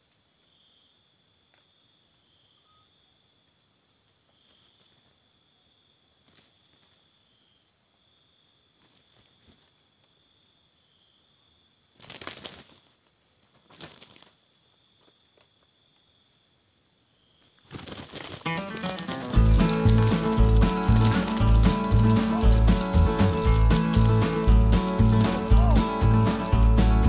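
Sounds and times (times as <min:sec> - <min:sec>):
insects trilling: 0:00.0 - 0:27.0
wings flapping: 0:12.0 - 0:12.9, 0:13.6 - 0:14.3, 0:17.6 - 0:27.0.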